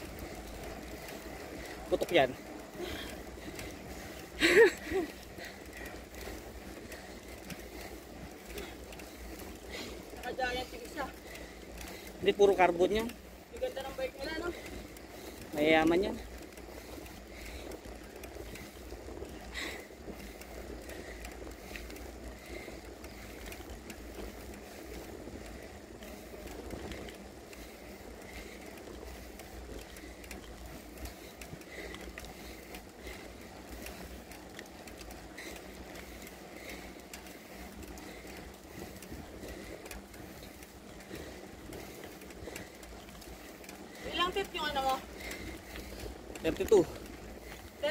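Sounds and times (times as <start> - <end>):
bicycle tyre noise: 0.0 - 47.9.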